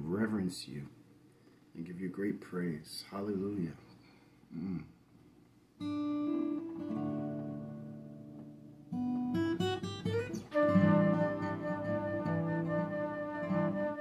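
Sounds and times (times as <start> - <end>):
guitar strumming: 5.8 - 14.0.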